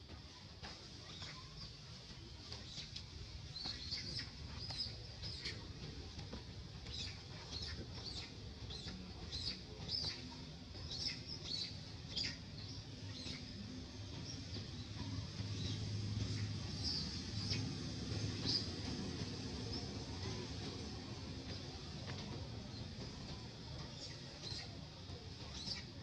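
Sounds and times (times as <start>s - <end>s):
birds chirping: 1.0s - 20.5s.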